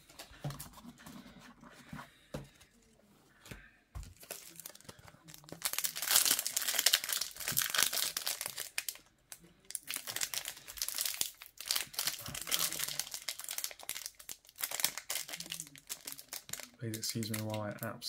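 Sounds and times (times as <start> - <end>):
foil wrapper crinkling and tearing: 4.2 - 9.1, 9.7 - 17.6.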